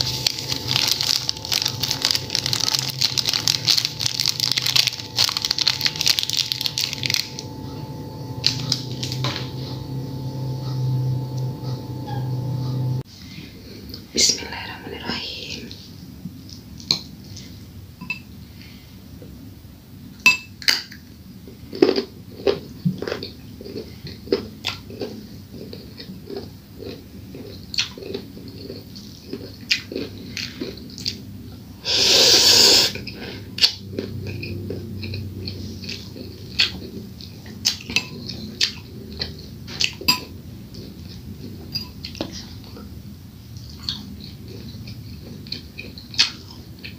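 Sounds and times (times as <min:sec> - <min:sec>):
crunching carrot bites: 0:00.0 - 0:07.5.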